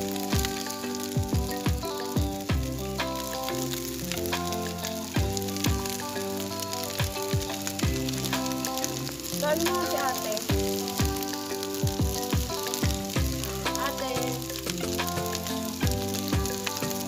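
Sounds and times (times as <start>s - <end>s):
rice sizzling in a wok: 0.0s - 17.0s.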